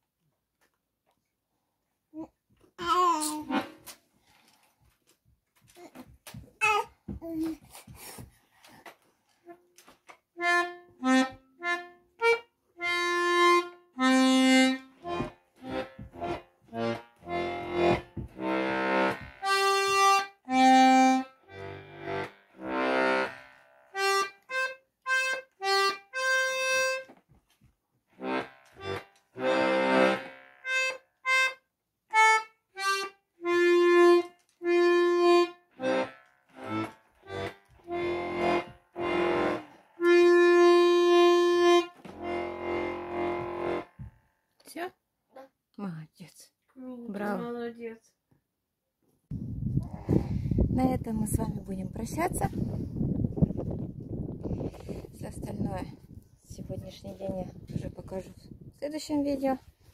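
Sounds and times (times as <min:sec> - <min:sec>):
button accordion playing: 0:03.4 - 0:04.0, 0:10.4 - 0:27.2, 0:28.1 - 0:44.1.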